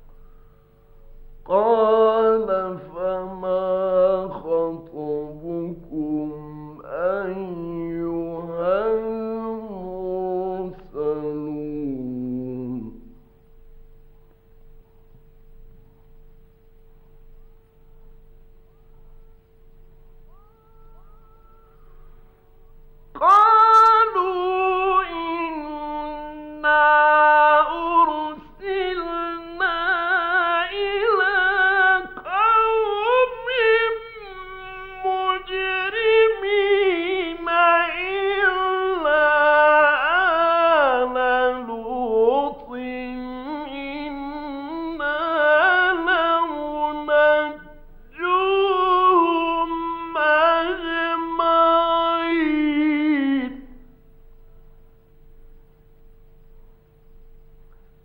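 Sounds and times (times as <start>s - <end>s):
faint steady hum: 0.0s - 58.0s
man chanting melodically: 1.5s - 13.2s, 23.2s - 53.8s.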